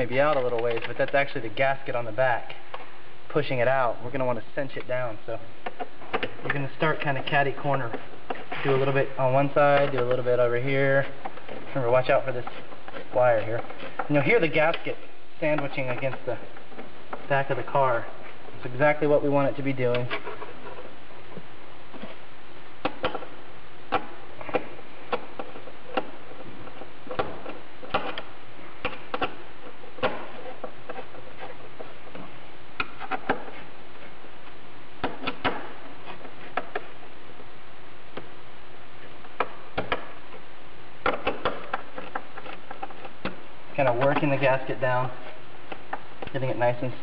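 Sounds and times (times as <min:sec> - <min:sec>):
bolts clicking and knocking: 0:35.0 - 0:37.0, 0:39.2 - 0:40.4, 0:41.0 - 0:45.1.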